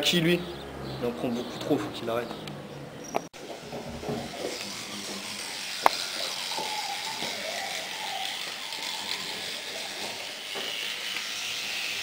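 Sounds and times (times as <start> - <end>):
toothbrush scrubbing teeth: 4.2 - 12.0.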